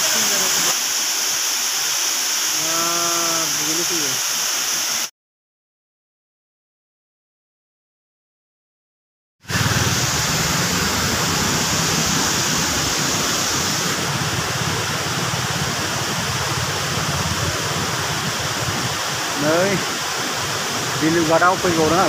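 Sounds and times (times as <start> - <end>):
falling water rushing: 0.0 - 5.1, 9.5 - 22.0.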